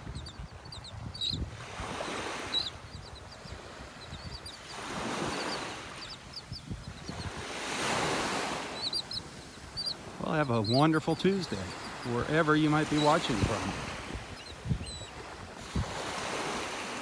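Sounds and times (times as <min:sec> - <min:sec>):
surf washing onto beach: 0:01.4 - 0:17.0
faint high chirps: 0:08.7 - 0:12.2.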